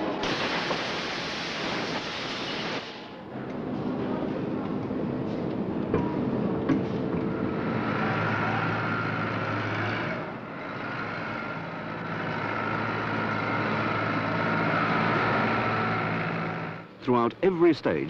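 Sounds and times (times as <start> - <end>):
factory machinery noise: 0.0 - 18.0
tractor engine running: 3.5 - 17.8.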